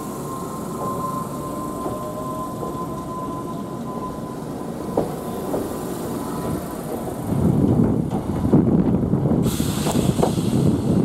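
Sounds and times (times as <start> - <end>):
electric train rolling past: 0.0 - 11.0
train wheels clacking: 4.8 - 11.0.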